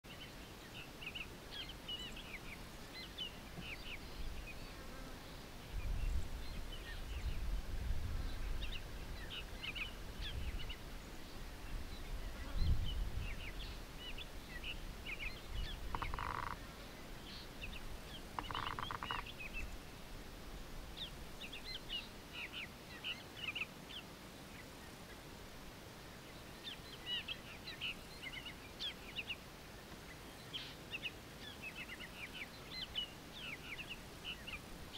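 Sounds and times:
birds chirping: 0.1 - 7.4, 8.3 - 19.9.

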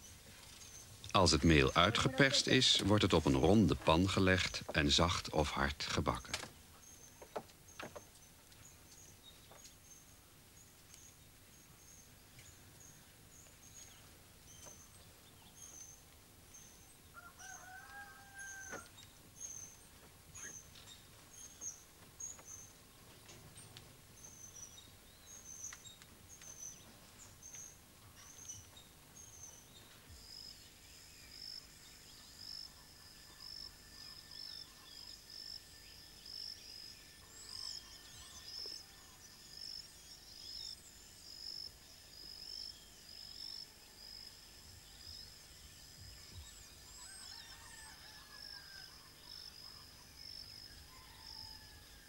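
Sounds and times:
birds twittering: 0.0 - 52.0
high insect chirp: 29.2 - 51.7.

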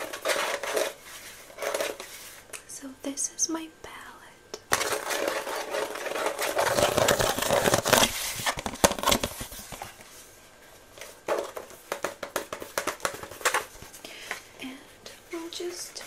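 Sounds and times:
plastic palette rubbing and clicking: 0.0 - 2.2, 4.7 - 10.0, 11.0 - 13.8
taps on plastic: 11.3 - 13.6.

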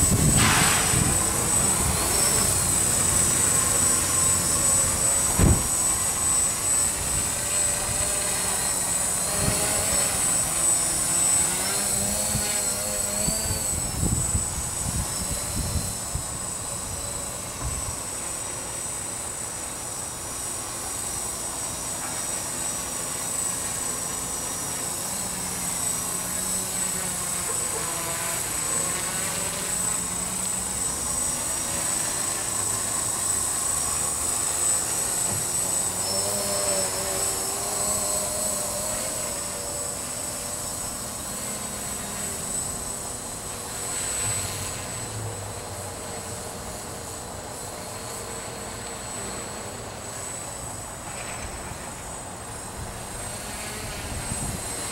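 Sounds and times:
wind buffeting microphone: 0.0 - 2.1
quadcopter propellers buzzing: 0.0 - 54.9.

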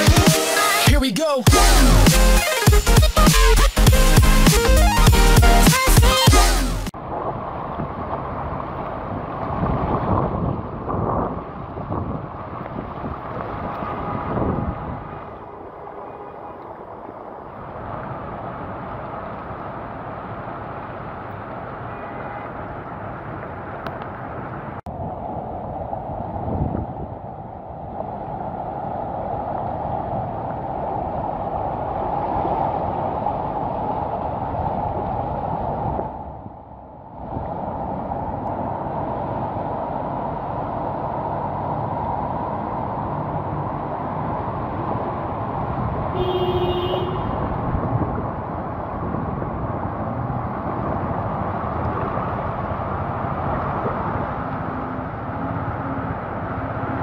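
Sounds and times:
wind noise on microphone: 2.8 - 57.0
water sloshing and rushing: 6.9 - 57.0
car engines running: 38.1 - 57.0.

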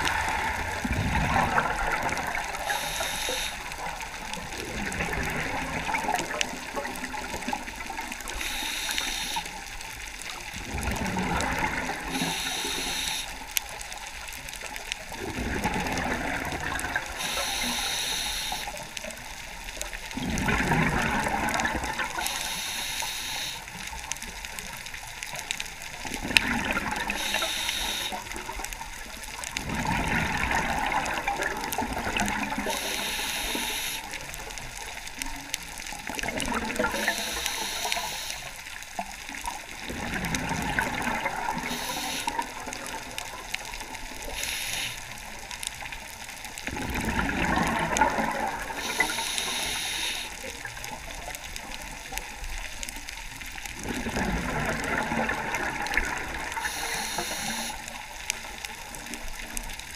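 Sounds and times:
regulator hissing inhale: 2.6 - 3.7, 8.3 - 9.6, 12.1 - 13.4, 17.2 - 18.8, 22.2 - 23.7, 27.1 - 28.3, 32.7 - 34.2, 36.9 - 38.6, 41.6 - 42.4, 44.2 - 45.1, 48.8 - 50.4, 56.6 - 57.9
bubbling exhale: 10.7 - 13.4, 46.7 - 50.4, 53.8 - 57.9.

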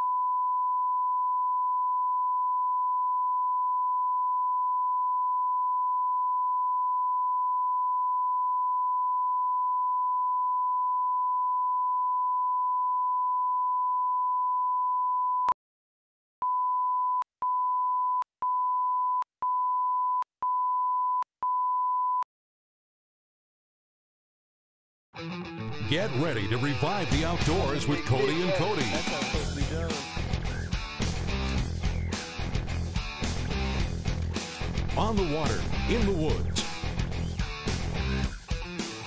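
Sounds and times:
steady pure test tone beep: 0.0 - 15.6, 16.4 - 22.3.

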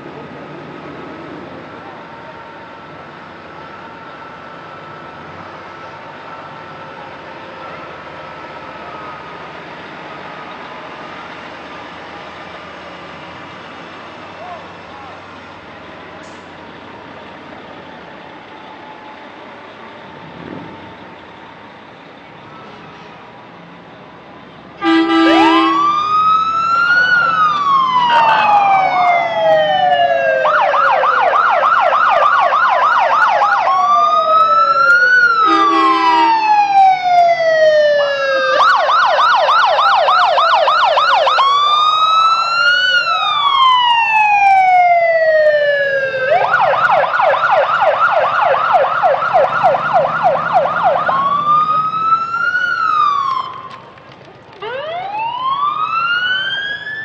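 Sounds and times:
short horn blast: 24.8 - 25.8, 35.5 - 36.3
emergency siren wailing and yelping: 24.8 - 57.0.

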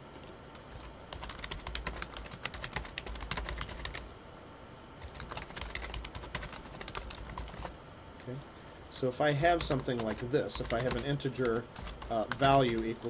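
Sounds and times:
computer keyboard typing: 0.7 - 4.1, 5.0 - 7.7, 9.4 - 13.0.

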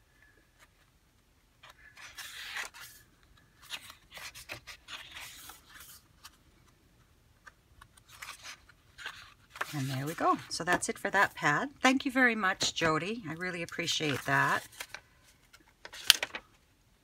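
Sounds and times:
paper pages flipping: 1.6 - 6.8, 7.4 - 11.4, 12.6 - 16.7.

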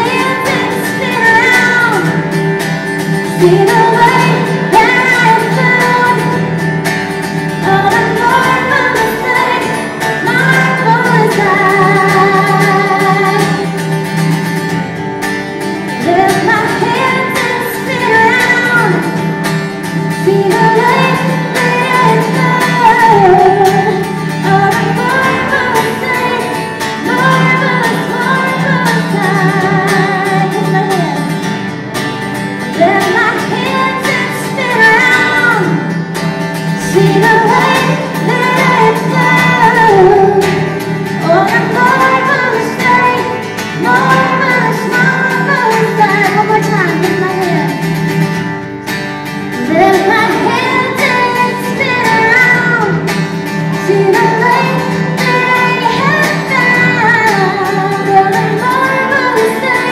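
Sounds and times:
acoustic guitar: 0.0 - 59.9
man and woman singing: 20.2 - 31.3, 36.8 - 47.8, 49.5 - 59.9.

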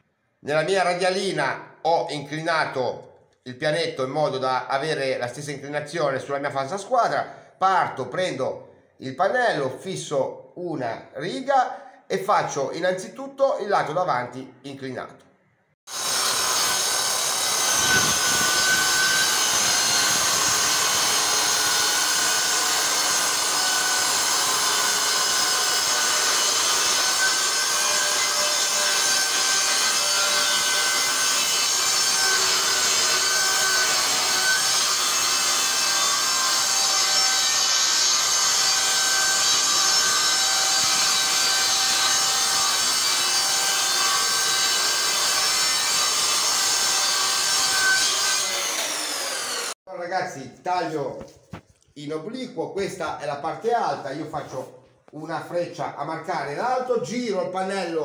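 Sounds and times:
circular saw cutting chipboard: 15.9 - 49.8.

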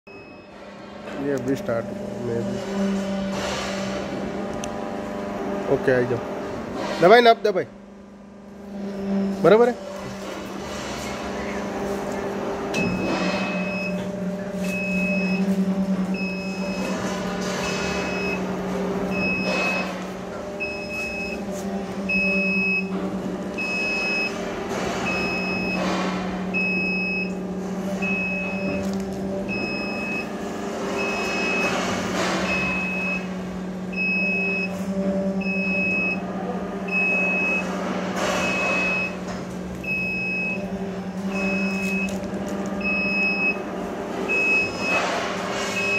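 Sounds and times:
lift motor humming: 0.1 - 45.9
warning beeper: 12.8 - 18.5, 19.1 - 20.0, 20.6 - 23.0, 39.9 - 42.2.

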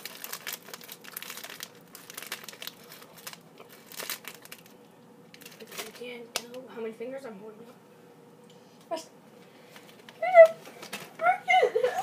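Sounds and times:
plastic wrapper crinkling: 0.0 - 6.6.

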